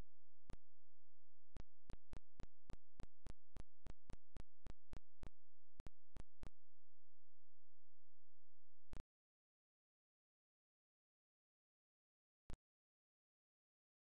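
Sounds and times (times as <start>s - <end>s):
sharp evenly spaced clicks: 1.5s - 6.6s.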